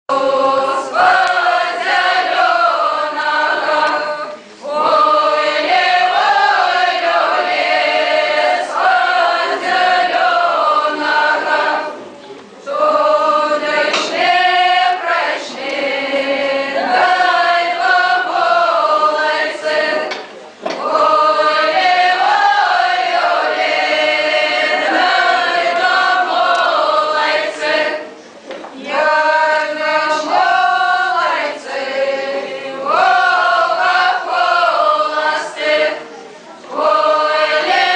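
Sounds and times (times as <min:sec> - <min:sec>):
mixed choir singing unaccompanied: 0:00.1 - 0:37.9.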